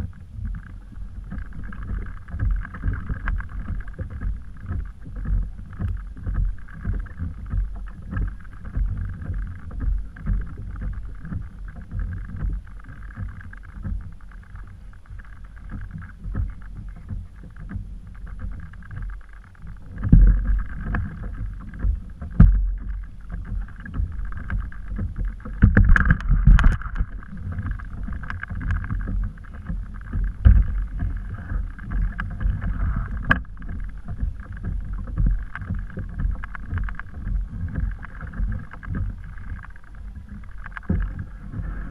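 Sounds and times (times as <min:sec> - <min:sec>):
water slapping kayak hull: 0:00.0 - 0:41.9
wind buffeting microphone: 0:00.0 - 0:41.9
knocks on hull: 0:19.9 - 0:39.2.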